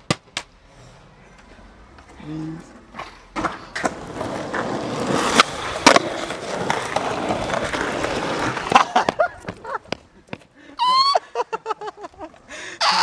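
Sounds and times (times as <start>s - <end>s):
skateboard clacks: 0.0s - 0.6s, 2.9s - 10.5s
skateboard wheels rolling on asphalt: 0.0s - 10.7s.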